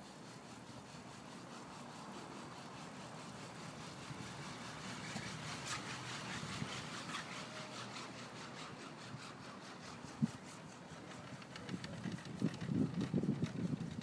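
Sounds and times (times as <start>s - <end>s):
chairlift running noise: 0.0s - 14.0s
faint clicking and rattling: 0.4s - 14.0s.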